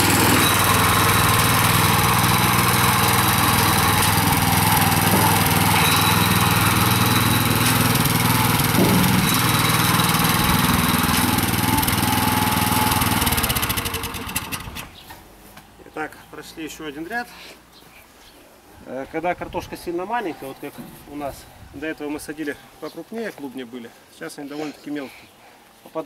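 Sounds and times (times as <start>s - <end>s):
tractor engine running under load: 0.0s - 14.9s.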